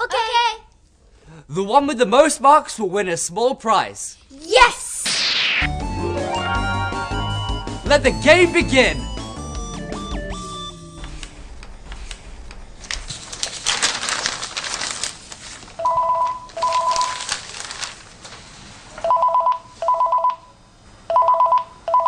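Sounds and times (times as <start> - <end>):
phone ringing electronic trill: 5.7 - 11.2, 15.8 - 17.1
newspaper pages rustling: 12.8 - 19.0.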